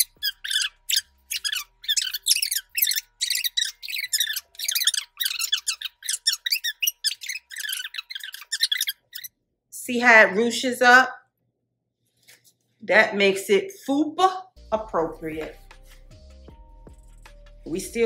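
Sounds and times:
fast-forwarded squeaky voice: 0:00.0 - 0:09.3.

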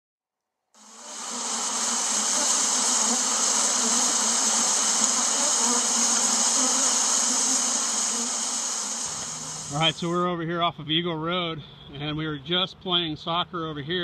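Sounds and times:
bee swarm buzzing: 0:00.8 - 0:10.1.

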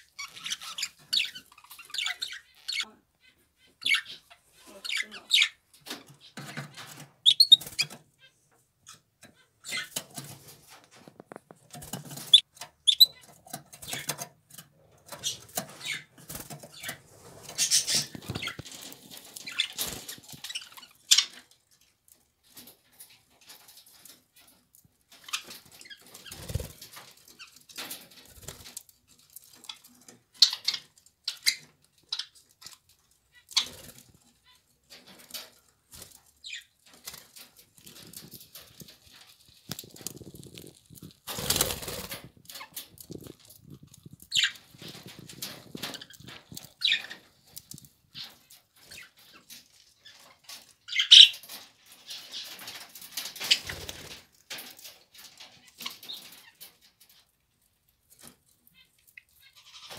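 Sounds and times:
wings flapping: 0:26.2 - 0:27.0, 0:37.0 - 0:47.2
beaks clicking and tapping: 0:35.1 - 0:51.6.

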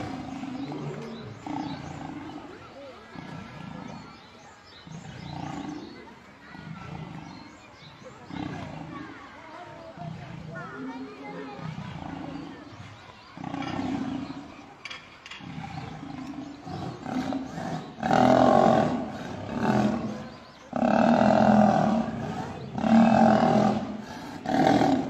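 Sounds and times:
lions snarling and growling: 0:00.0 - 0:25.0.

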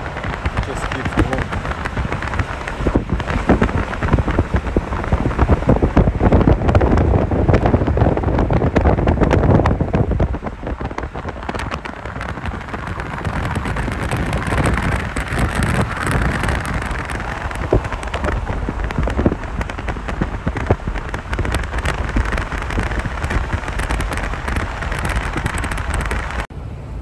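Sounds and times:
car road and wind noise: 0:00.0 - 0:27.0
wind buffeting microphone: 0:00.0 - 0:27.0.

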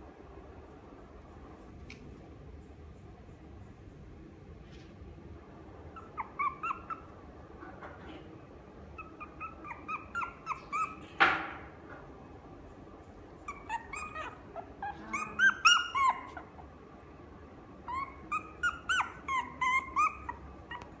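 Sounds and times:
puppy whining and yipping: 0:05.9 - 0:07.2, 0:08.9 - 0:11.2, 0:13.4 - 0:16.7, 0:17.8 - 0:21.0
puppy yelping: 0:05.9 - 0:07.2, 0:08.9 - 0:11.2, 0:13.4 - 0:16.7, 0:17.8 - 0:21.0.

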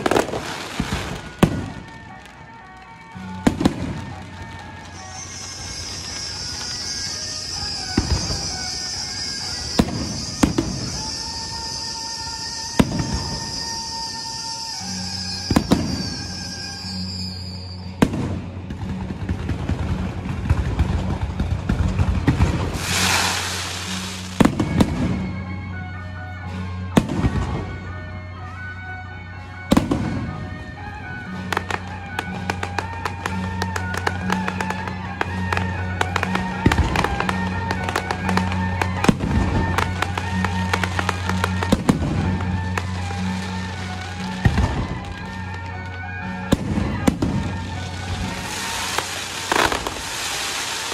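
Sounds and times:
firework bangs: 0:00.0 - 0:25.4, 0:31.2 - 0:50.9
music playing: 0:00.0 - 0:50.9
rushing hiss: 0:22.7 - 0:24.4
crackling of bursting shells: 0:22.7 - 0:24.8.

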